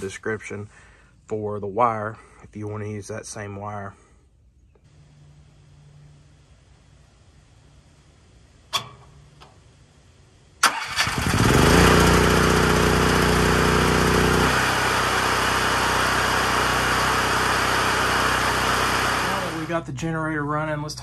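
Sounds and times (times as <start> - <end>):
generator engine running: 4.9 - 20.0.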